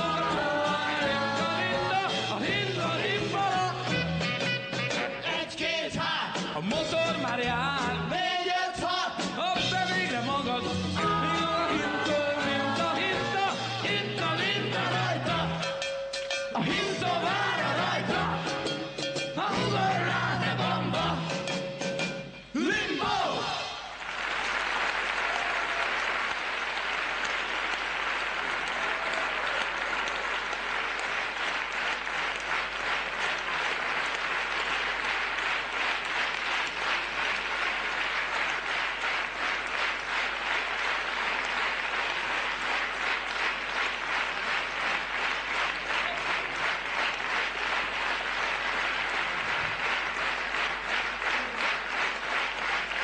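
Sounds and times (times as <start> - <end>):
crowd clapping in rhythm: 0.0 - 22.2, 23.1 - 53.0
large audience applauding: 23.1 - 53.0.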